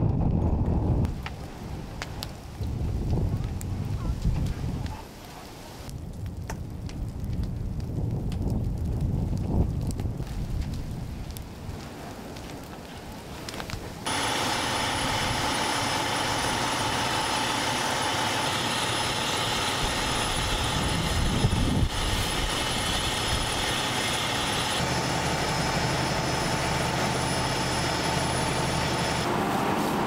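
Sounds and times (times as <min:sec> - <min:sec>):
engine running with whine: 0:14.1 - 0:30.0.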